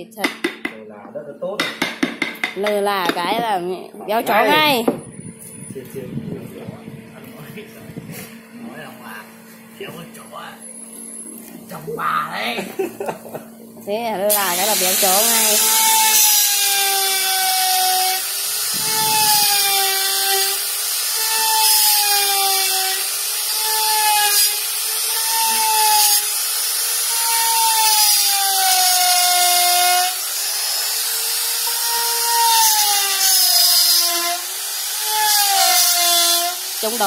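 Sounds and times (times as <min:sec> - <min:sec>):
rotary tool cutting wood: 0:14.3 - 0:37.0.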